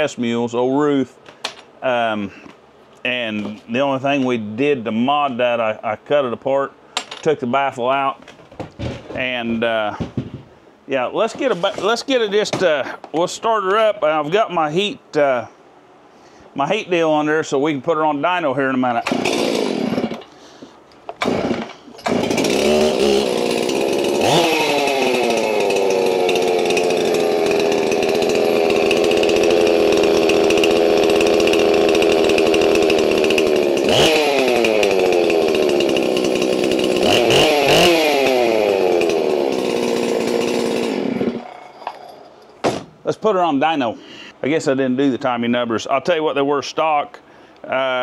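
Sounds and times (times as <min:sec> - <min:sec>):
chainsaw idling and revving: 0:19.0 - 0:20.3, 0:21.2 - 0:41.6
chainsaw pull-starting: 0:19.0 - 0:20.4, 0:21.1 - 0:42.6.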